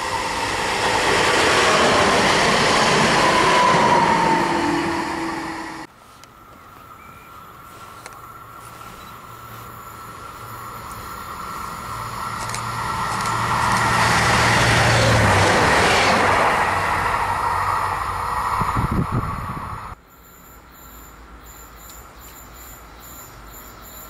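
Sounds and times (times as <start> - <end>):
diesel train passing at speed: 0.0 - 6.0, 8.3 - 20.0
steady high whine: 0.0 - 20.0.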